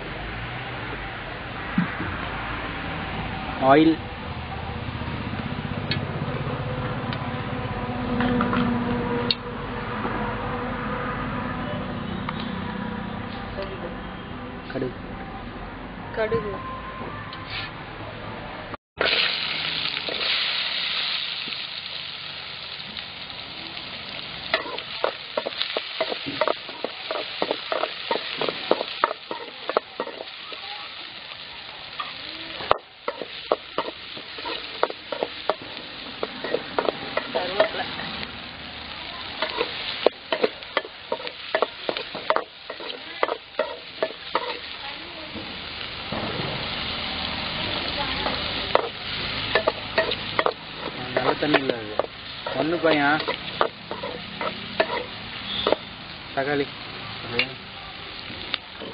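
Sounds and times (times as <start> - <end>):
seeds sizzling in hot oil: 19.0 - 58.9
metal spoon scraping pan: 24.5 - 30.6, 32.6 - 38.0, 39.4 - 44.7, 48.7 - 55.9.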